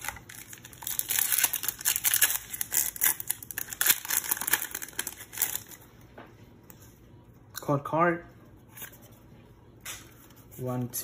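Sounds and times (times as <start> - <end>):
foil wrapper crinkling: 0.0 - 5.8.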